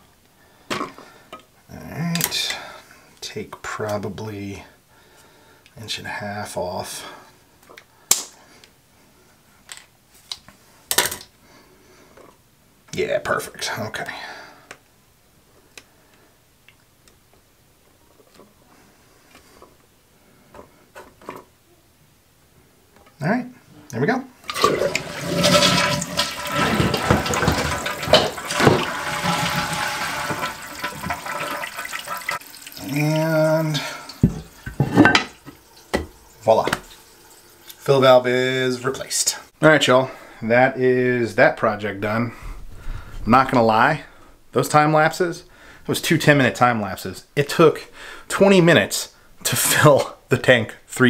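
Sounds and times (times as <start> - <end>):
toilet tank water rushing: 24.4 - 38.3.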